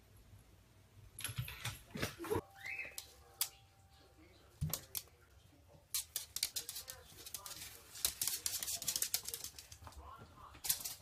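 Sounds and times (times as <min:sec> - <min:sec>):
cat claws scratching carpet: 0:05.9 - 0:09.8.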